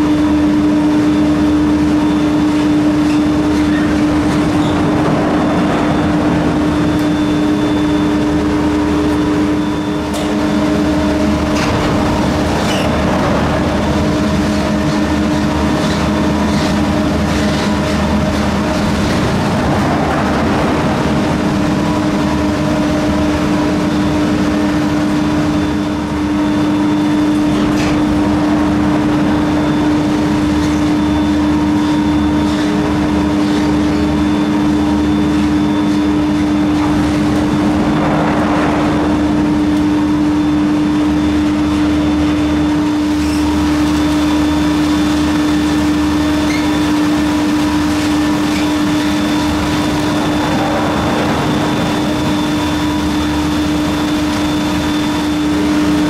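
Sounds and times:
gondola machinery humming: 0:00.0 - 0:56.0
cabins rolling noise: 0:36.4 - 0:40.9.

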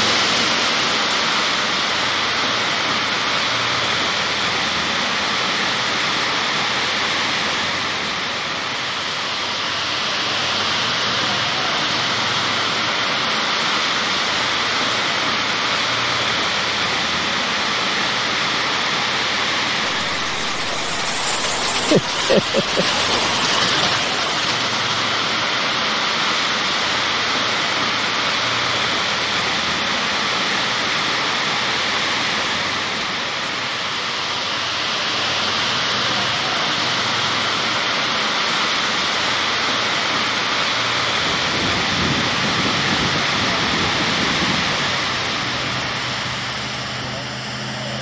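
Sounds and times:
waterfall rushing and splashing: 0:19.9 - 0:25.3.

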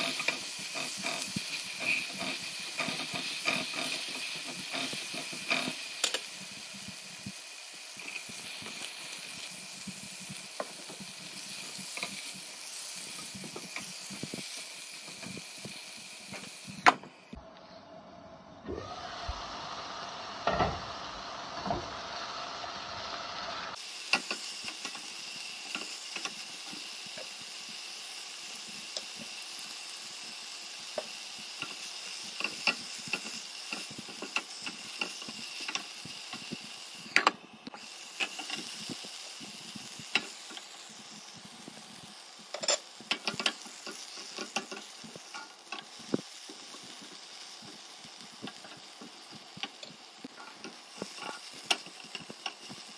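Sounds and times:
spatula scraping and tapping pan: 0:00.0 - 0:06.3, 0:42.5 - 0:47.1, 0:48.4 - 0:52.9
stir-fry sizzling in a pan: 0:00.0 - 0:17.4, 0:19.0 - 0:52.9.

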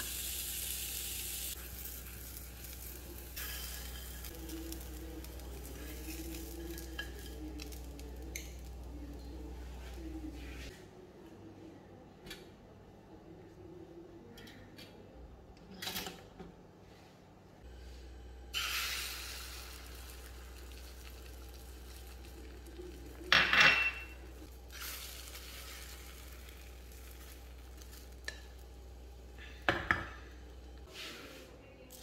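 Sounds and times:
egg sizzling in frying pan: 0:00.0 - 0:08.6, 0:18.5 - 0:23.3, 0:24.0 - 0:29.3.

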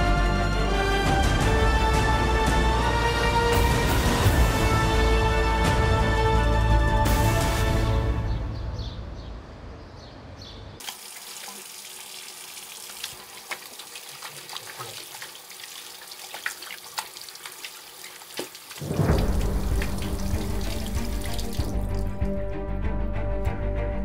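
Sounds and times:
music: 0:00.0 - 0:09.3, 0:18.8 - 0:24.0
running water hiss: 0:10.8 - 0:22.3
water splashes and drips: 0:10.8 - 0:22.4.

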